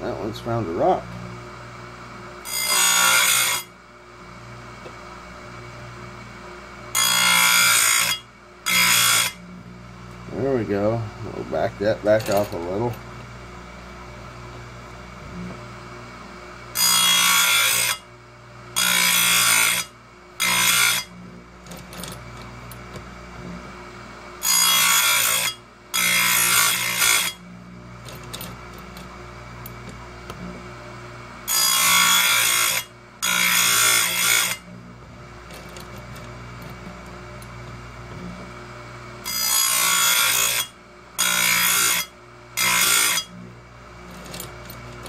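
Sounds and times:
grinder motor humming: 0.0s - 45.0s
grinding wheel on chain tooth: 35.4s - 36.8s.

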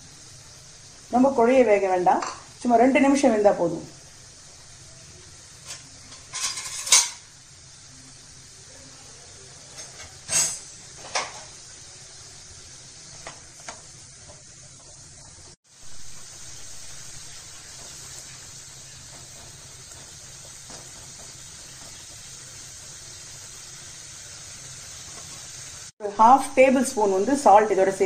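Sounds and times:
water simmering in a pan: 0.0s - 28.0s
utensil clinking on pan: 5.7s - 7.3s.

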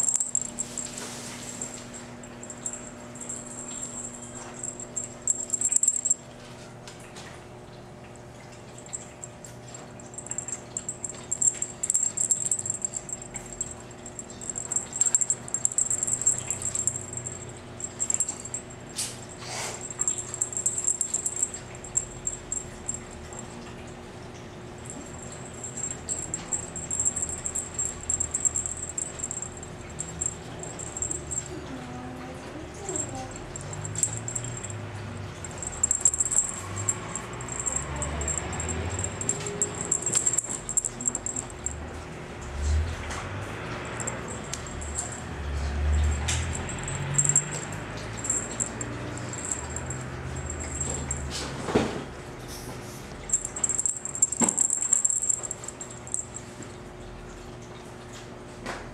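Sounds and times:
high-pitched toy jingling: 0.0s - 6.2s, 10.0s - 23.6s, 24.9s - 42.0s, 43.8s - 51.6s, 53.2s - 56.6s
low hum: 24.8s - 51.3s.

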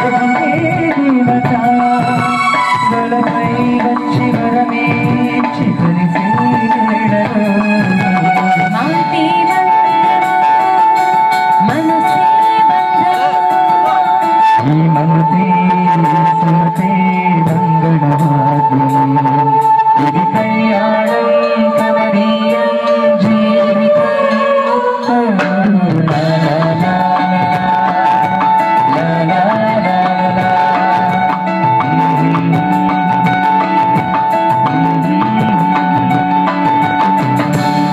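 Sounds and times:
amplified singing: 0.0s - 37.9s
drum kit beat: 0.0s - 37.9s
keyboard: 0.0s - 37.9s.

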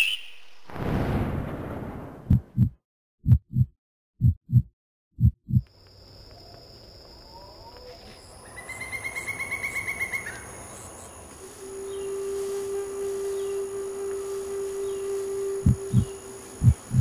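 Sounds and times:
heartbeat-like double thump: 2.2s - 5.6s
crickets chirping: 5.5s - 17.0s
insects buzzing: 5.6s - 17.0s
bird calls: 6.3s - 12.3s.

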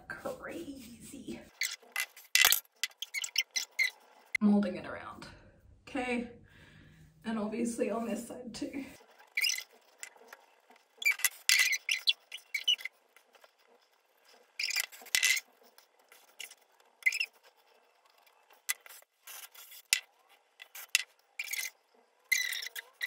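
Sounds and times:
hair rustling: 0.0s - 4.4s.

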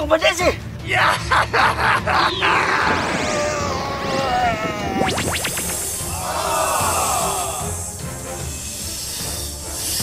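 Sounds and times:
electronic tones sliding down: 4.7s - 6.1s
wavering tone: 4.8s - 6.0s.

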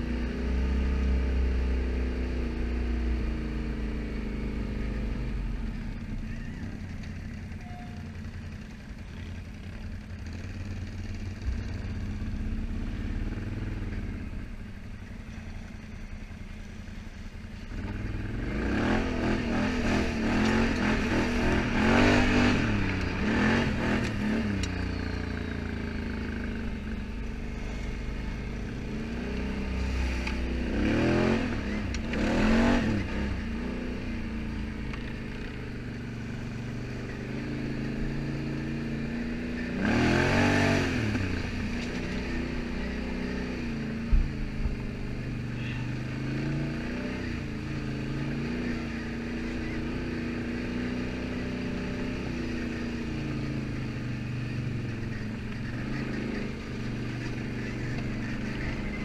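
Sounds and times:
atv engine revving: 0.0s - 59.0s.

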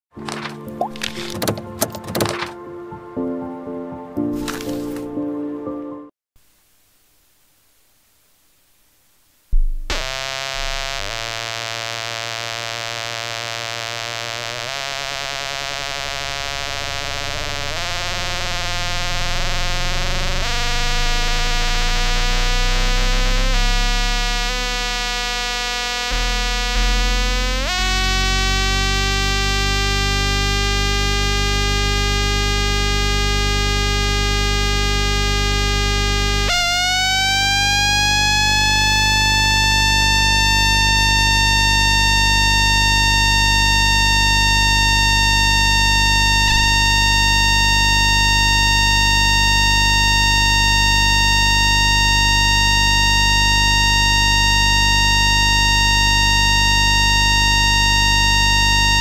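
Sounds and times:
electrical hum: 6.6s - 59.0s
converter whining tones: 9.5s - 59.0s.

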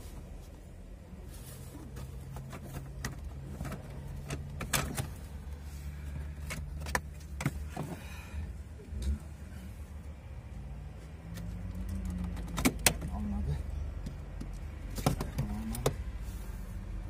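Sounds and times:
sharp clicks and knocks: 11.3s - 13.2s.

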